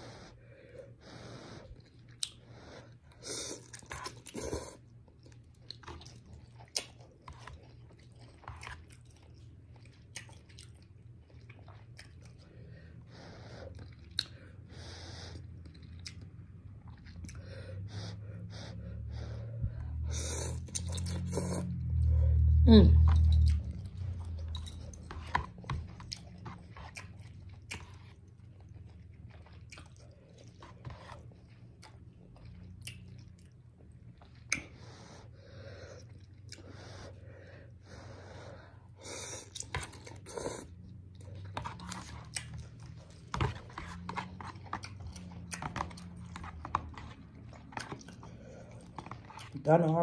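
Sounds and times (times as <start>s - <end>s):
chewing and slurping noodles: 0.0s - 50.0s.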